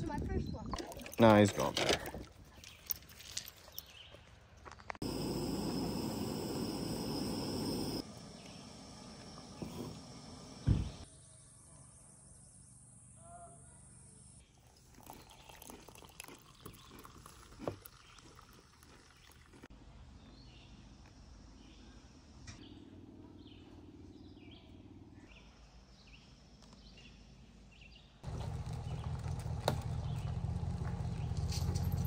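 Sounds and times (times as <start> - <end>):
camp stove burner hissing: 5.0 - 11.1
loud thump: 10.6 - 11.0.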